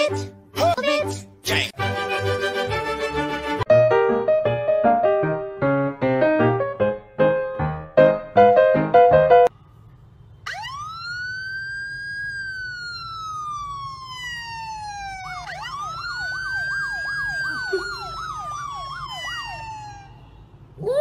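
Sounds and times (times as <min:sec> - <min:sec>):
siren wailing: 0:10.4 - 0:20.4
fast yelping siren tone: 0:10.5 - 0:20.4.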